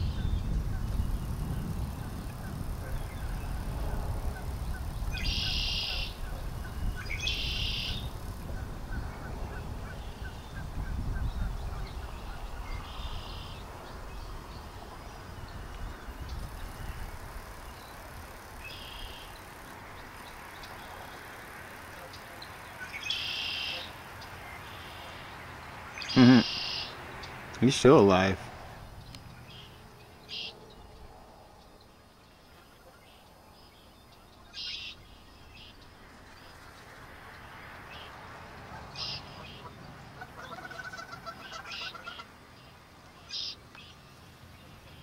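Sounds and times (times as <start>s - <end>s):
buzzy bird calls: 26.0s - 27.0s, 38.8s - 42.3s.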